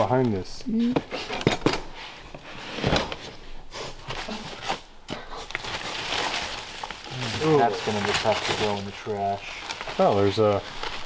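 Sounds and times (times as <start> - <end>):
rustling debris: 1.4 - 11.0.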